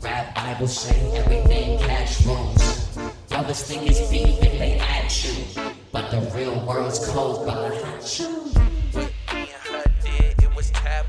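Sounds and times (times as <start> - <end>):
drum machine hits: 0.9 - 5.2, 8.6 - 11.0
deep synth bass: 1.0 - 3.1, 3.9 - 5.6, 8.6 - 11.0.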